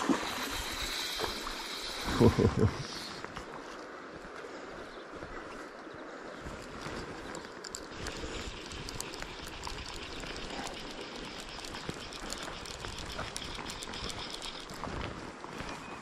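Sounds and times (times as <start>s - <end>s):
river rushing over stones: 0.0s - 2.1s
footsteps on gravel and grass: 6.4s - 16.0s.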